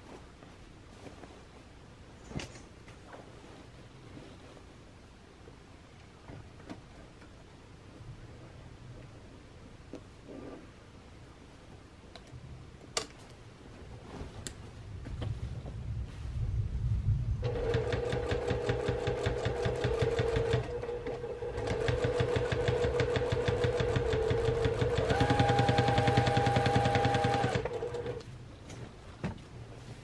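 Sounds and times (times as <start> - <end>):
sewing machine stitching: 17.4 - 28.2.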